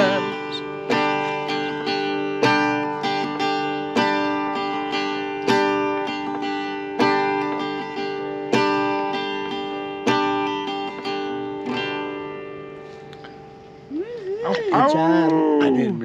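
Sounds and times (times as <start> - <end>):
acoustic guitar strumming chords: 0.0 - 16.0.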